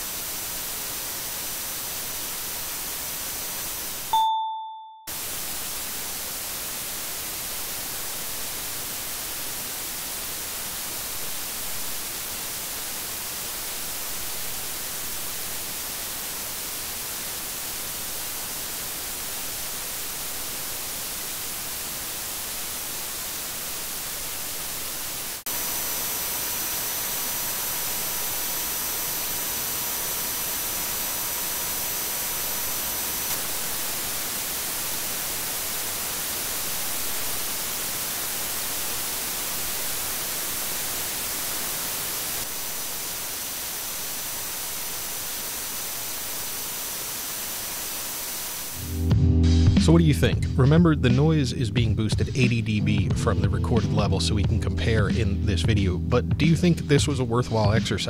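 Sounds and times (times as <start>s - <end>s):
microphone preamp hiss: 0.0s - 4.2s, 5.1s - 49.2s, 49.8s - 53.2s, 53.8s - 58.0s
thin high-pitched whine tones: 3.4s - 6.8s.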